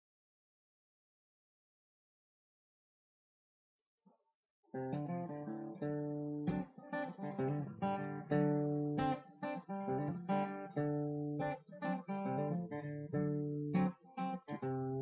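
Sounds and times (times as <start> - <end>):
acoustic guitar playing: 4.8 - 15.0.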